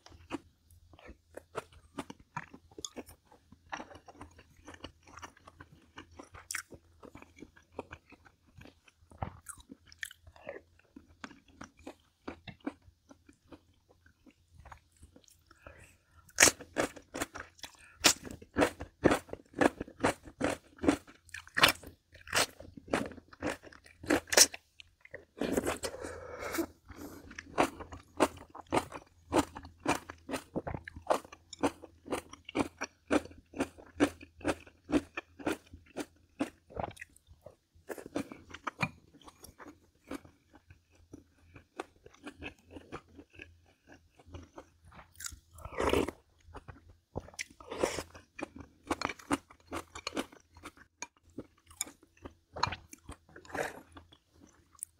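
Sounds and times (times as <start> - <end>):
chewing crunchy pickles: 0.0 - 54.9.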